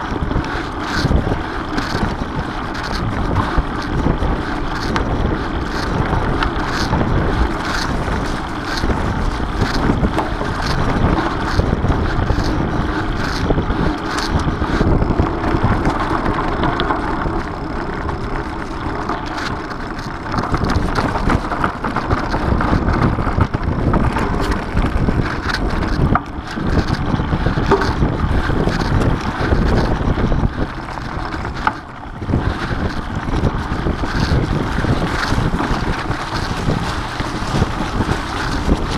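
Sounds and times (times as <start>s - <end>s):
bike clicks and rattles: 0.0s - 38.9s
bike tyres rolling on dirt: 0.0s - 38.9s
wind on microphone: 0.0s - 38.9s.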